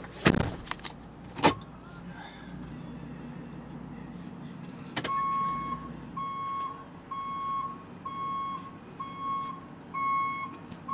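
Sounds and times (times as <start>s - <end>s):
dashboard warning chime beeping: 4.7s - 10.9s.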